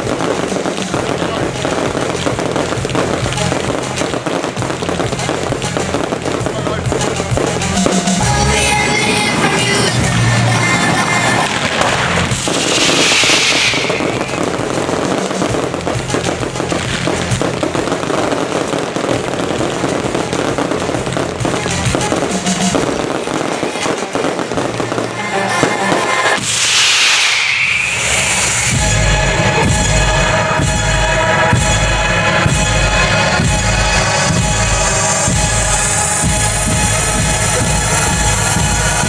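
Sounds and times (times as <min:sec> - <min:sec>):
fireworks crackling and banging: 0:00.0 - 0:39.0
show music: 0:00.0 - 0:39.0
falling whoosh: 0:08.8 - 0:14.6, 0:25.8 - 0:30.6.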